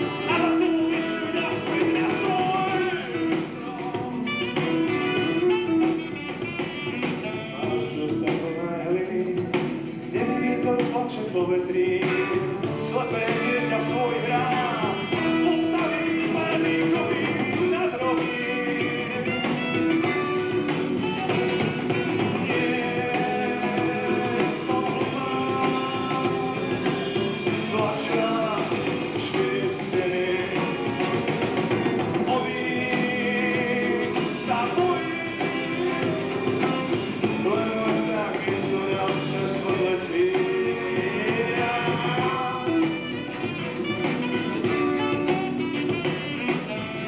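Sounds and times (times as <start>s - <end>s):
saxophone: 0.0s - 10.9s, 11.6s - 47.0s
bass guitar: 0.0s - 47.0s
drum kit: 0.0s - 47.0s
electric guitars: 0.0s - 47.0s.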